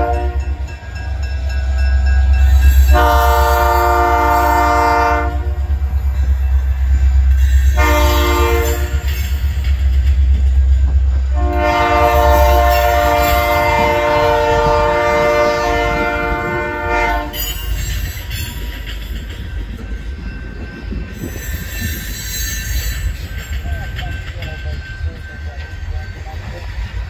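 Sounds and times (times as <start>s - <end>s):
locomotive horn blast: 0.0s - 0.6s, 2.9s - 5.8s, 7.7s - 9.1s, 11.3s - 17.5s
train rail and wheel noise: 0.0s - 27.0s.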